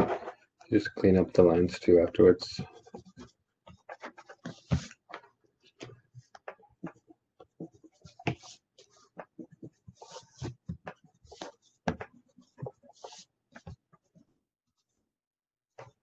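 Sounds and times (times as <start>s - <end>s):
marker scratching on paper: 2.7s - 5.0s, 6.1s - 11.8s, 12.4s - 13.8s.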